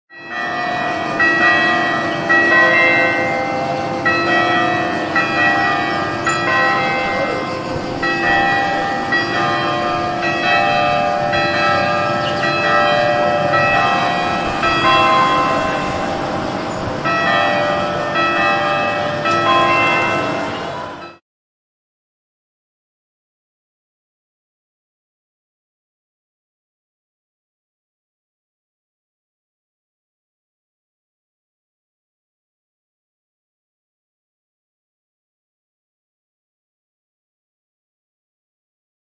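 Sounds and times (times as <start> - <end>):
church bells ringing a peal: 0.1 - 21.2.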